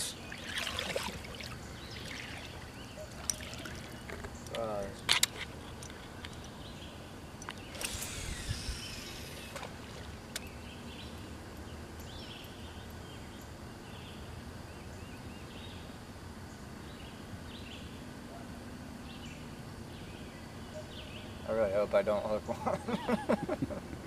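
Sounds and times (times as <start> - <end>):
songbird chirping: 0.0 - 23.2
fishing line whizzing off reel: 7.7 - 10.4.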